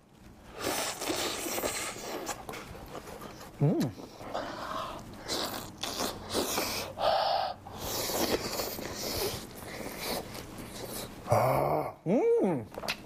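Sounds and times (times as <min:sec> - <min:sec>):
man chewing and smacking: 0:00.2 - 0:06.9, 0:07.7 - 0:11.3.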